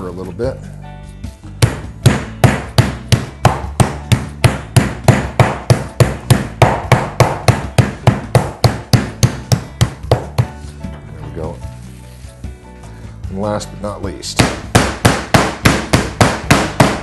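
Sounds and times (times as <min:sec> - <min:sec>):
meat mallet pounding: 0:01.4 - 0:10.6, 0:14.4 - 0:17.0.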